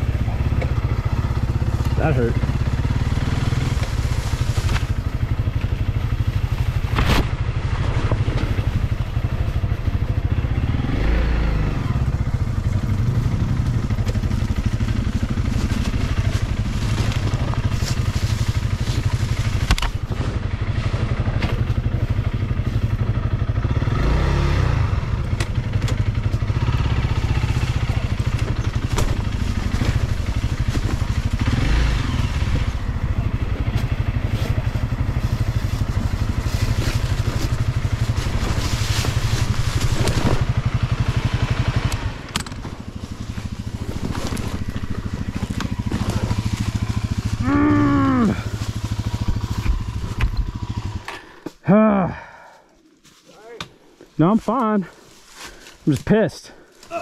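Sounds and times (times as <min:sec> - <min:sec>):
motorcycle engine revving: 0:00.0 - 0:52.6
bike knocking and clattering: 0:25.3 - 0:26.7, 0:27.6 - 0:31.6.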